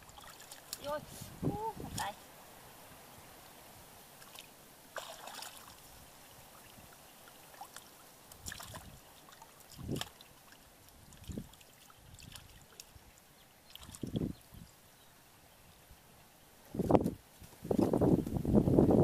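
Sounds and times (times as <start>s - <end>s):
fish splashing into water basin: 4.2s - 5.8s, 7.2s - 12.9s, 13.7s - 14.2s
hands splashing in muddy water: 4.2s - 5.8s, 7.4s - 13.0s.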